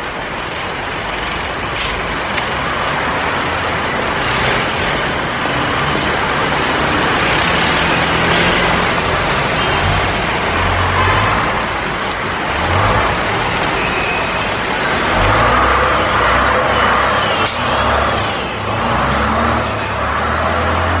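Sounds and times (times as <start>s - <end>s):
road traffic engines and tyres: 0.0s - 21.0s
thin high squeal: 13.6s - 19.9s.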